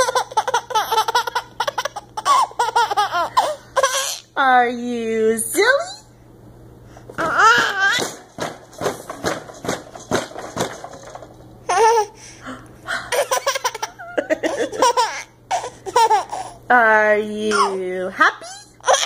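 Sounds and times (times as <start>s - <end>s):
baby laughing: 0.0s - 4.3s, 7.2s - 8.3s, 11.7s - 12.2s, 13.1s - 16.6s, 17.5s - 17.8s, 18.4s - 19.0s
baby squealing: 0.0s - 4.3s, 7.2s - 8.1s, 18.4s - 19.0s.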